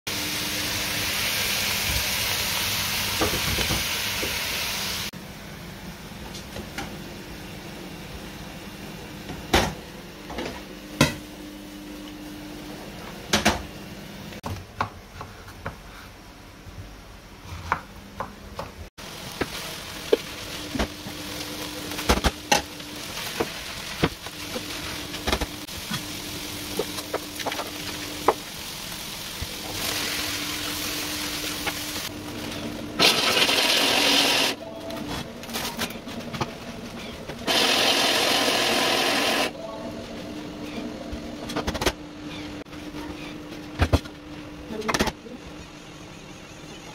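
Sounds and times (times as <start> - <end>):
meat sizzling in a pan: 19.0 - 32.1.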